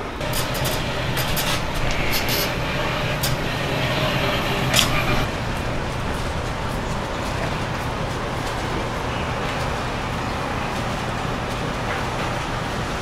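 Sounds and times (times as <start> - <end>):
steady low hum: 0.0 - 11.7
heavy vehicle running: 0.0 - 13.0
street noise: 0.0 - 13.0
sharp clicks: 0.2 - 5.3.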